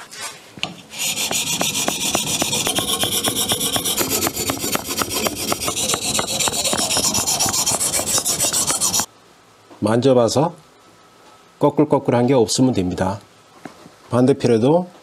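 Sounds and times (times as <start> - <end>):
whetstone rasping on metal blade: 0.8 - 9.1.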